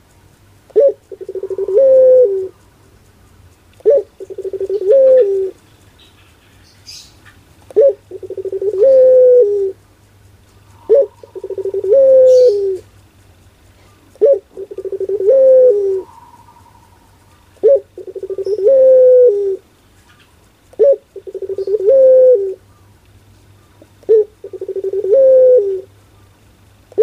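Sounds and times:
dove cooing: 0:00.7 - 0:02.8, 0:03.8 - 0:05.6, 0:06.8 - 0:09.8, 0:10.6 - 0:13.0, 0:13.7 - 0:23.0, 0:23.8 - 0:26.0.

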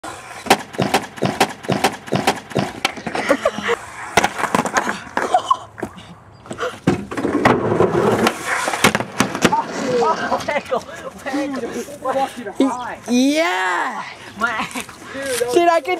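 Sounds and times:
skateboard clacking on plywood: 0:06.8 - 0:09.8.

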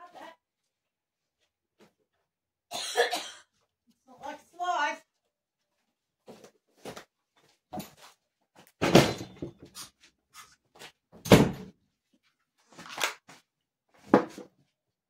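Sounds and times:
knocks and bumps in a room: 0:08.7 - 0:09.8, 0:11.2 - 0:11.8.

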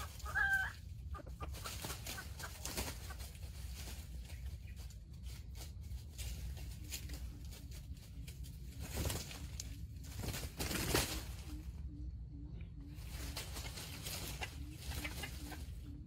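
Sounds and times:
junglefowl clucking softly: 0:00.0 - 0:03.2, 0:14.3 - 0:16.0
rustling in dry leaves: 0:00.0 - 0:11.8, 0:12.9 - 0:16.0.

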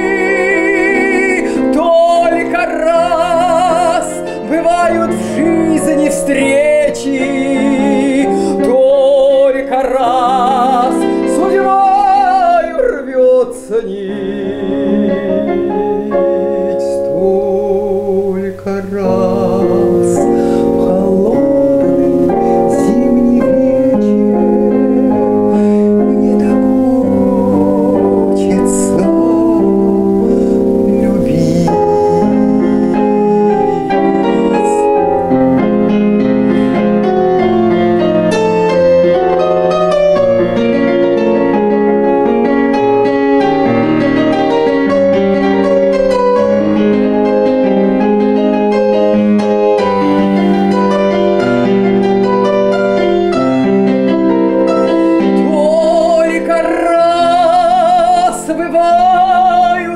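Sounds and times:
woman singing with vibrato: 0:00.0 - 0:35.4, 0:54.8 - 0:59.9
piano accompaniment: 0:00.0 - 0:59.9.

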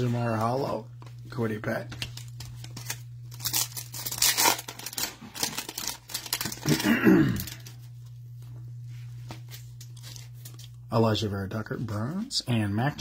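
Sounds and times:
steady low hum: 0:00.0 - 0:13.0
foil pack tearing and crinkling: 0:02.2 - 0:07.8.

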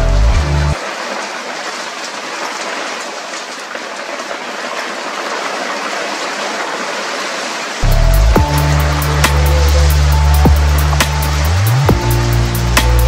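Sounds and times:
loud music: 0:00.0 - 0:00.8, 0:07.8 - 0:13.0
hail and heavy rain: 0:00.8 - 0:13.0.

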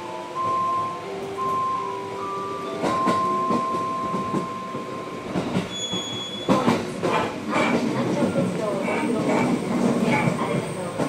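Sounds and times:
train rumble: 0:00.0 - 0:11.0
train wheels clacking on rails: 0:00.2 - 0:11.0
wheel squeal: 0:05.6 - 0:06.6.

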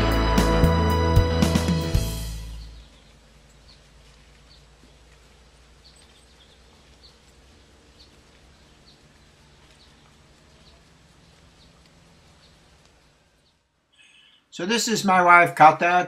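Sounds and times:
steady low hiss: 0:00.0 - 0:16.0
bird chirping: 0:01.8 - 0:14.5.

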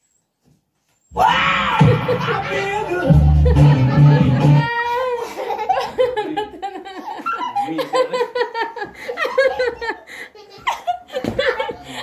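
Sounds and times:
person laughing: 0:01.8 - 0:11.9.

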